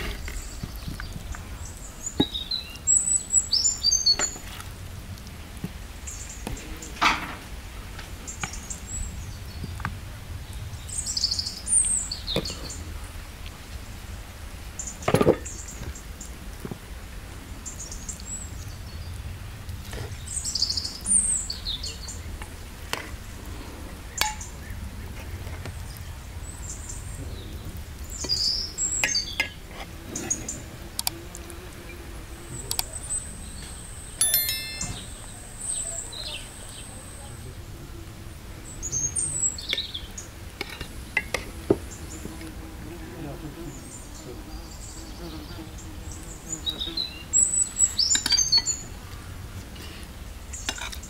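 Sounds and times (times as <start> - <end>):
songbird chirping: 32.6 - 37.5
metal spoon clinking on plate: 34.2 - 35.8.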